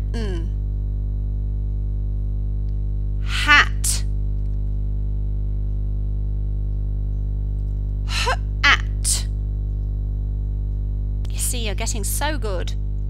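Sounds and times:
woman sounding out speech sounds: 0.0 - 0.5, 3.2 - 4.1, 8.1 - 9.3, 11.3 - 12.8
low electrical hum: 0.0 - 13.0.

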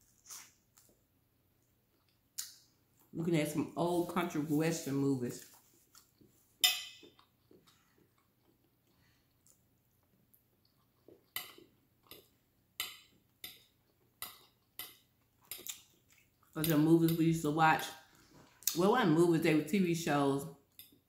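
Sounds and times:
person eating: 0.1 - 1.0, 5.4 - 16.6
fork clinking on glass plate: 6.6 - 7.1.

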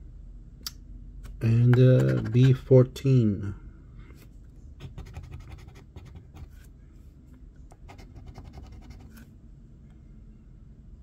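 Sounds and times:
coin scraping scratch card: 2.0 - 2.6, 4.8 - 6.6, 7.9 - 9.2.

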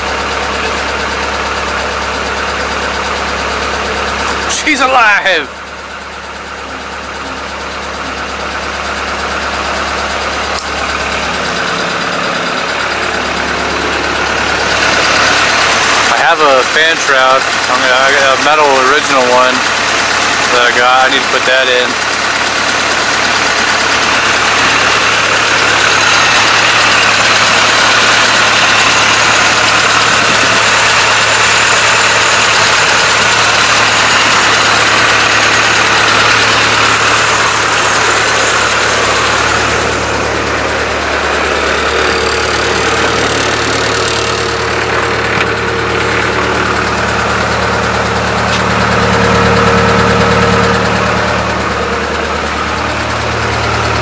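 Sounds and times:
car engine idling: 0.0 - 54.0.

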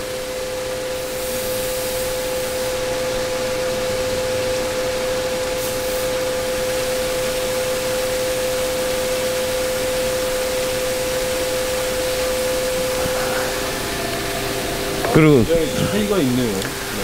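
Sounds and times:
hose spraying water: 0.0 - 17.0
steady humming tone: 0.0 - 17.0.

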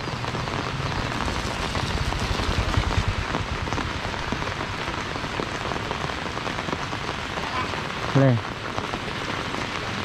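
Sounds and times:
rain on an umbrella: 0.0 - 10.0.

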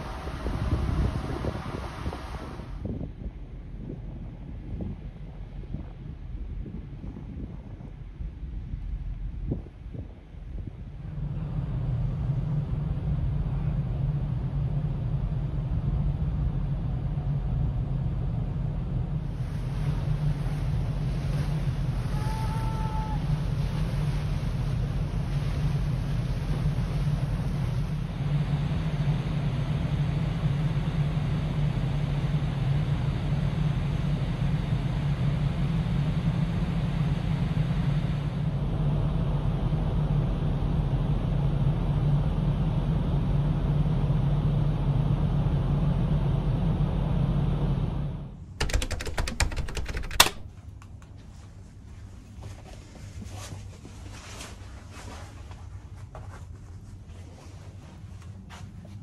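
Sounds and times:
wind on microphone: 0.0 - 43.8
ship engines droning: 10.8 - 48.6
sharp clicks and knocks: 48.6 - 51.1.

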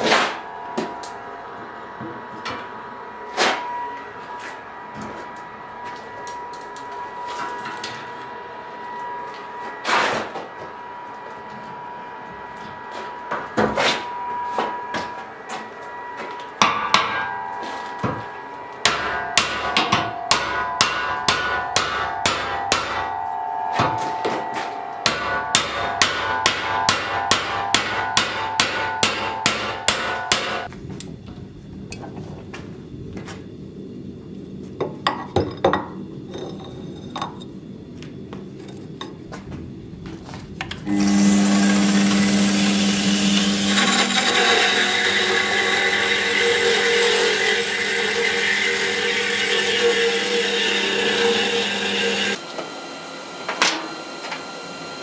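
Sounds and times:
hammer striking chisel on metal: 16.6 - 17.4, 18.0 - 30.7.

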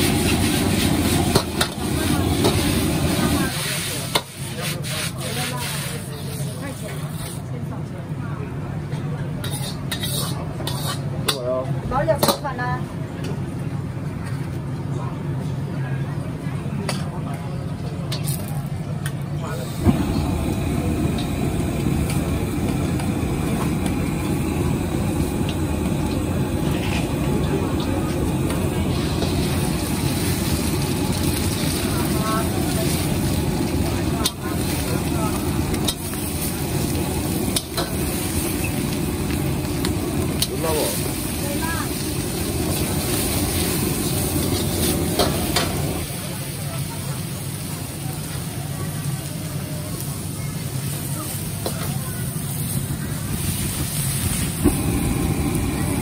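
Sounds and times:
frying sizzle: 0.0 - 7.4, 19.5 - 56.0
ladle scraping wok: 0.0 - 7.5, 9.4 - 11.5, 24.8 - 46.0
gas burner roar: 0.0 - 13.9, 17.7 - 56.0.

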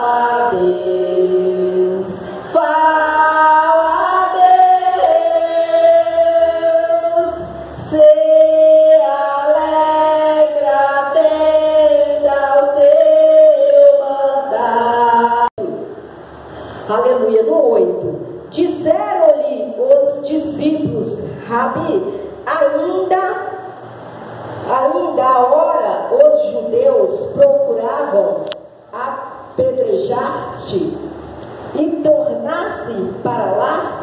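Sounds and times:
woman singing unaccompanied: 0.0 - 15.8
singer breathing: 16.5 - 16.9.

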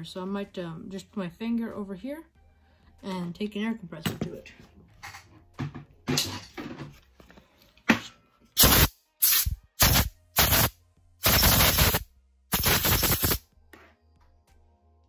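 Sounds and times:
compressed air blowing bursts: 8.6 - 13.4.

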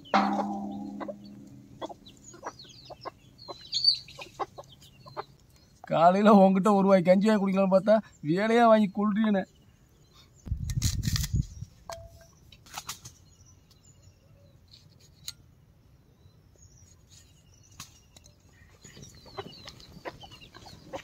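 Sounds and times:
hens clucking: 0.0 - 5.4, 19.2 - 21.0
birds calling: 0.0 - 15.2, 16.0 - 21.0.

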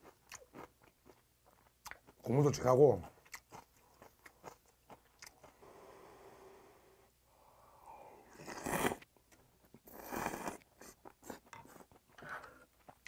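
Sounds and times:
person slurping from spoon: 8.2 - 9.0, 9.9 - 11.5.

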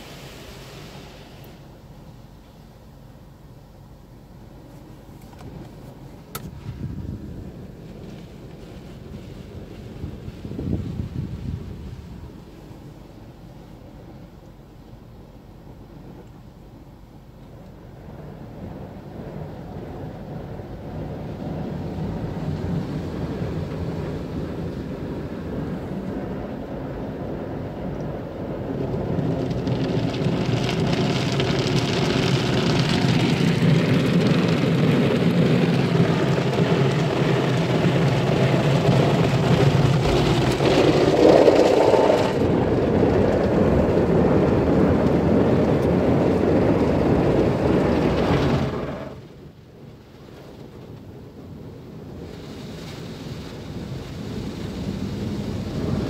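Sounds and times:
water spray hitting car: 0.0 - 1.8, 27.8 - 49.2
car wash machine hum: 0.0 - 56.0.

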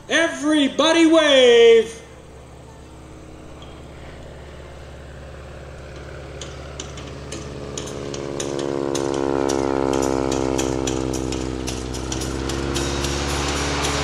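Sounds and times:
propeller plane engine flying past: 0.0 - 14.0.

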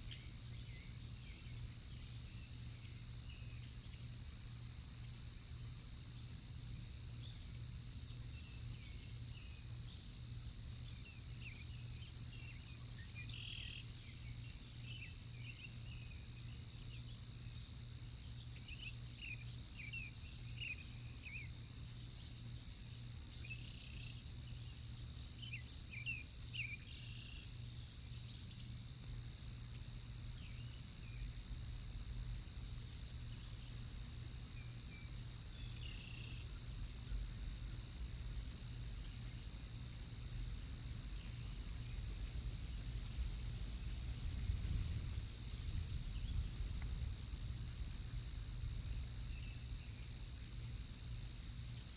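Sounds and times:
insect drone: 0.0 - 51.9
steady hum: 0.0 - 51.9.

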